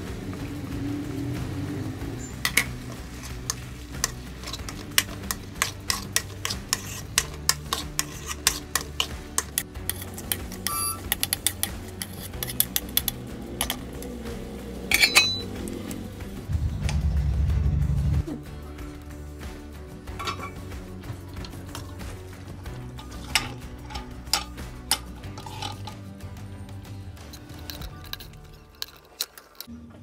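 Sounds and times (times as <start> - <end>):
spoon scraping a metal pan: 2.2 - 14.0, 14.9 - 15.8, 20.1 - 20.8, 21.4 - 26.0
steel lid clattering on a pan: 14.9 - 15.5, 20.1 - 20.8, 22.9 - 26.0.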